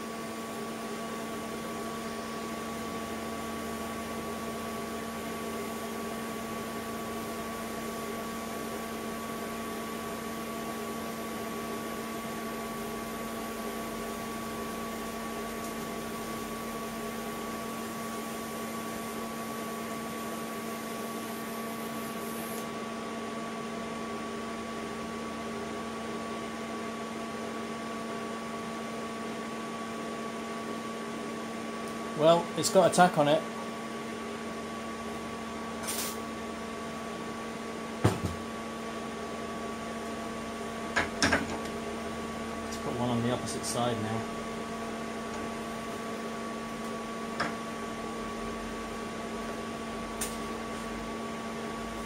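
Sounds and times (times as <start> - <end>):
welding machine hum: 0.0 - 22.8, 34.9 - 37.5, 38.4 - 52.0
welding arc hiss: 15.1 - 22.7, 35.8 - 36.3, 50.1 - 50.9.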